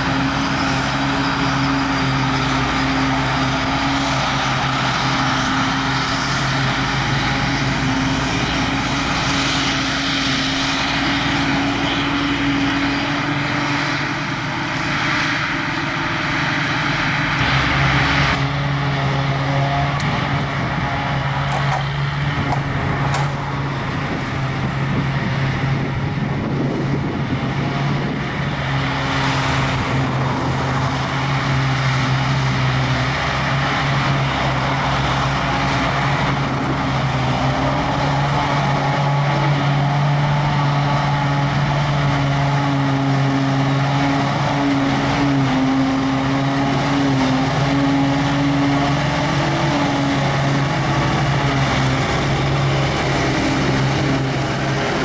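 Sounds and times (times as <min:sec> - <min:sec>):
forage harvester chopping grass: 0:00.0 - 0:25.7, 0:26.6 - 0:55.0
tractor engine: 0:00.0 - 0:55.0.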